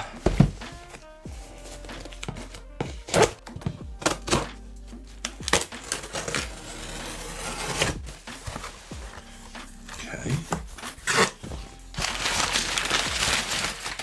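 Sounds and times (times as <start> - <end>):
knife cutting packing tape: 3.0 - 3.4, 5.2 - 8.0, 10.9 - 11.4.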